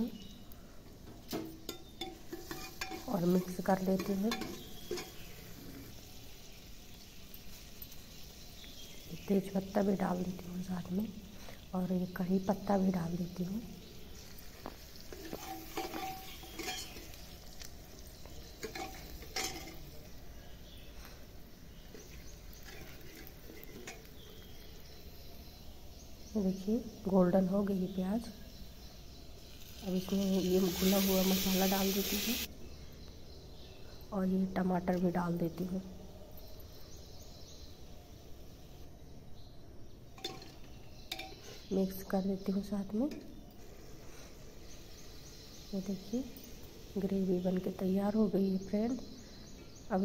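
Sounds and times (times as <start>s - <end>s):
onion frying and sizzling: 0.0s - 32.5s, 39.8s - 50.0s
faint background noise: 0.0s - 50.0s
spoon scraping metal pot: 1.6s - 5.3s, 15.0s - 17.2s.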